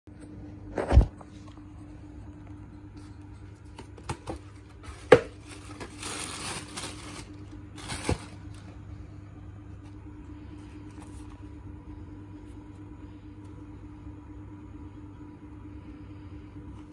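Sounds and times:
faint steady hum: 0:00.1 - 0:16.9
tissue paper rustling: 0:04.6 - 0:08.8.

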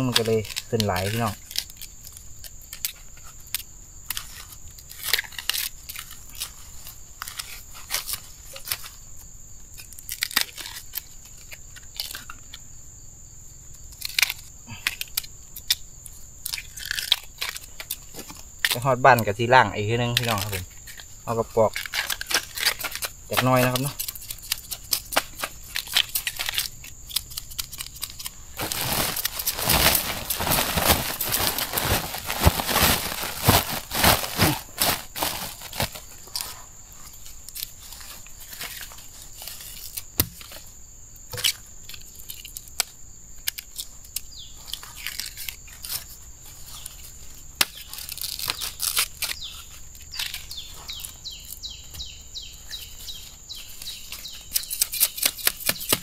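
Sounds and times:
dry leaves rustling and crackling: 0:20.1 - 0:40.0, 0:44.5 - 0:51.6.

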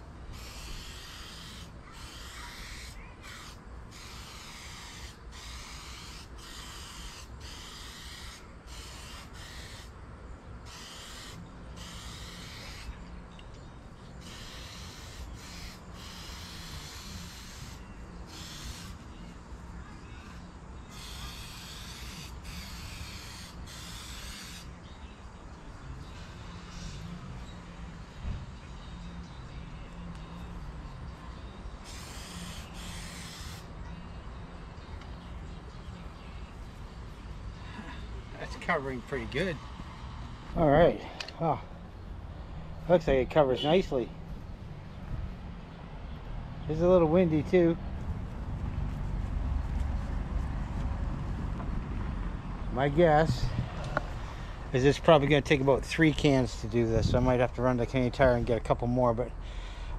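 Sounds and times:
aerosol spray can hissing: 0:00.4 - 0:09.9, 0:10.7 - 0:12.9, 0:14.2 - 0:19.0, 0:20.9 - 0:24.7, 0:31.8 - 0:33.7
wind rumble on microphone: 0:47.8 - 0:54.7, 0:56.9 - 0:57.4.

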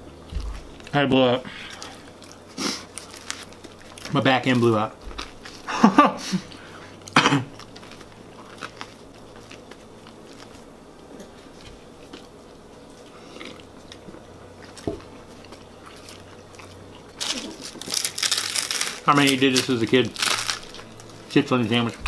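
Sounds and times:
person chewing food: 0:01.6 - 0:04.2, 0:06.4 - 0:19.0
faint crunches: 0:15.4 - 0:22.0.

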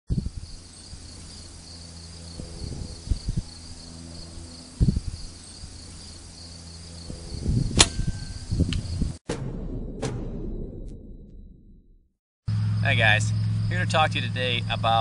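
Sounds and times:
crickets chirping: 0:00.1 - 0:09.2, 0:12.5 - 0:15.0
low steady hum: 0:00.3 - 0:08.8
sharp loud crack: 0:07.8 - 0:08.3.

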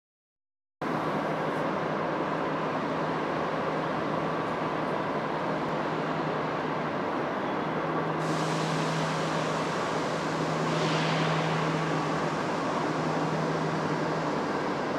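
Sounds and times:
even hiss: 0:08.2 - 0:14.9.

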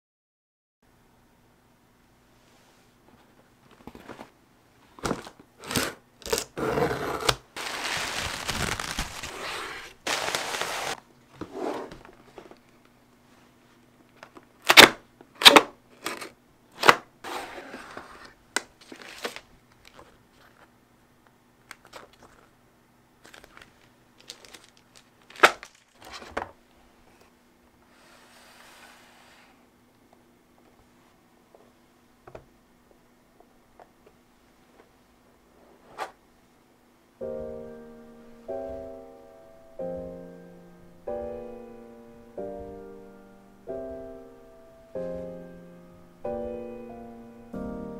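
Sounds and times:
cardboard tearing and scraping: 0:05.1 - 0:11.0, 0:24.3 - 0:26.4
sharp cardboard snaps: 0:14.6 - 0:15.7, 0:16.8 - 0:17.1.

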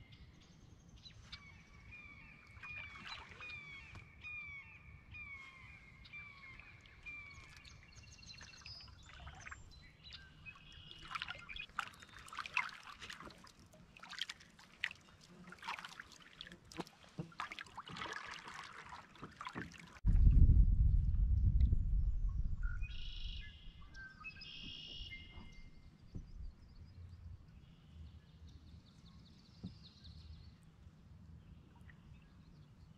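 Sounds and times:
paddle splashing water: 0:02.0 - 0:04.1, 0:05.5 - 0:20.0, 0:24.3 - 0:26.8
loud low rumble: 0:20.0 - 0:23.3.

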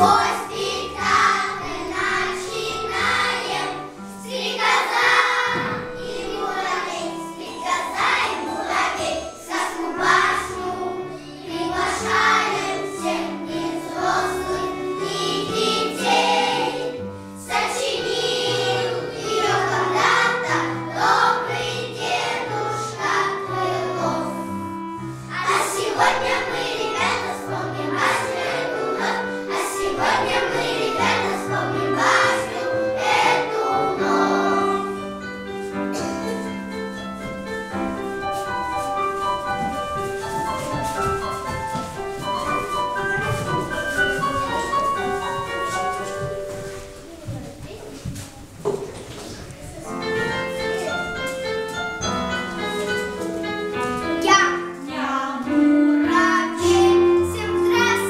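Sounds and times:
children singing: 0:00.0 - 0:24.6, 0:25.2 - 0:35.2, 0:54.4 - 0:58.0
musical backing track: 0:00.0 - 0:58.0.

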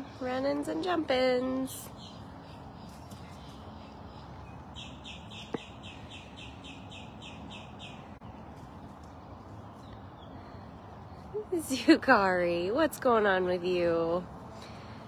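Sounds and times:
bird chirping: 0:01.5 - 0:08.6.

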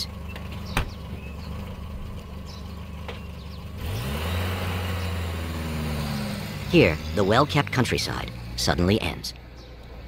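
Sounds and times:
jeep engine idling and revving: 0:00.0 - 0:10.0.

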